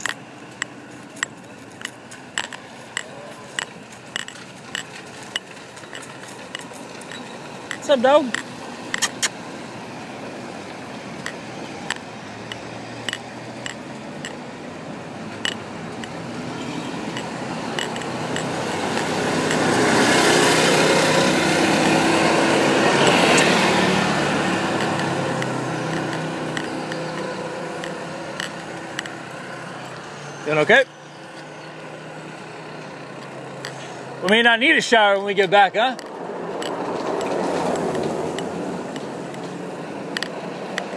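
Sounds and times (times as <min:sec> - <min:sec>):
pendant ticking against device: 0:00.0 - 0:09.2, 0:11.2 - 0:14.5, 0:15.4 - 0:16.2, 0:17.0 - 0:20.2, 0:21.6 - 0:23.6, 0:24.2 - 0:30.0
vehicle engine hum: 0:00.0 - 0:40.9.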